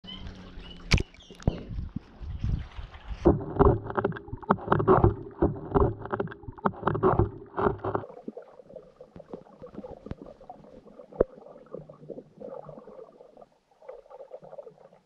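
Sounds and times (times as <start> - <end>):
water churning against camera: 0.1 - 15.0
sharp underwater clicks: 0.2 - 1.8, 3.2 - 8.1, 9.1 - 10.4
underwater hush: 3.3 - 15.0.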